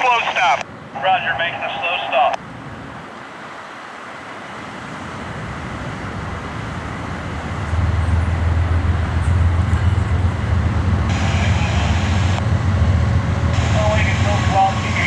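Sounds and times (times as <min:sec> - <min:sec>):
diesel locomotives rumbling: 0:00.0 - 0:03.4, 0:04.0 - 0:15.0
steady low drone: 0:06.2 - 0:15.0.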